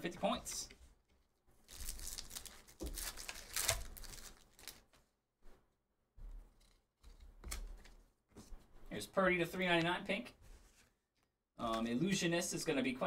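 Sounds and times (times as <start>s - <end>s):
foil wrapper crinkling: 1.6s - 5.0s.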